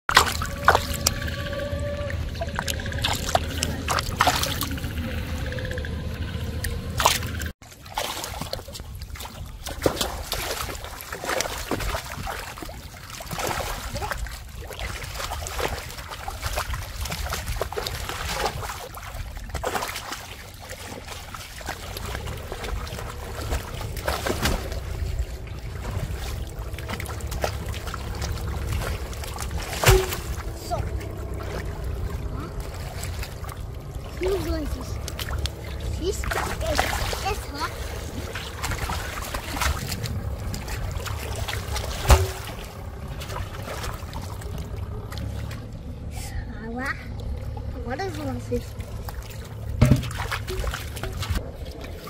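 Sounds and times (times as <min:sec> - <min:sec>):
feet wading through water: 0:00.1 - 0:05.5, 0:06.2 - 0:46.3, 0:46.9 - 0:52.0
fish thrashing in water: 0:00.1 - 0:05.7, 0:06.6 - 0:46.0, 0:47.2 - 0:52.0
low steady rumble: 0:00.1 - 0:52.0.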